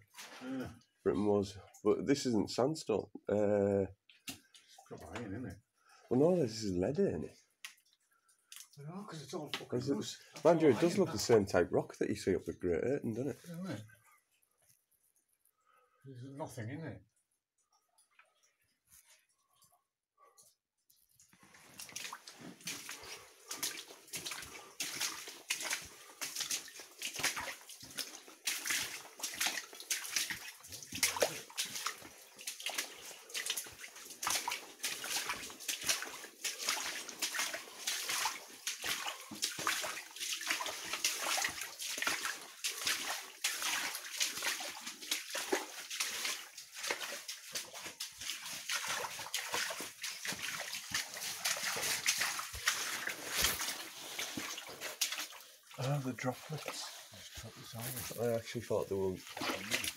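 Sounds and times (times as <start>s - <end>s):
footsteps splashing through water: 4.1s - 5.1s, 7.6s - 8.8s, 21.0s - 59.9s.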